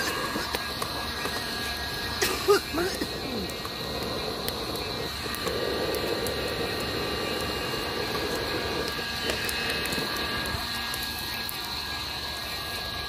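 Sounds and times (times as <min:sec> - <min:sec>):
rush of flame: 0:00.0 - 0:13.0
wood crackling and popping: 0:00.0 - 0:13.0.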